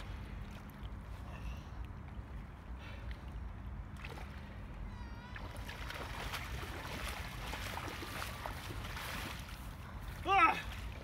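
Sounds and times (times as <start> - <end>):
legs splashing through water: 5.3 - 11.0.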